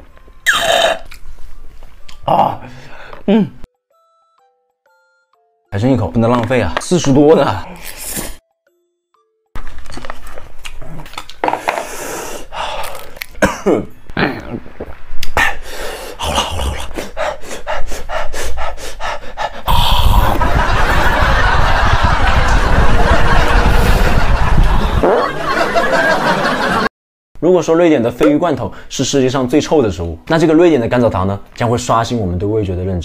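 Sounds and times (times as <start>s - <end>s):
man panting and gasping: 15.4s - 20.6s.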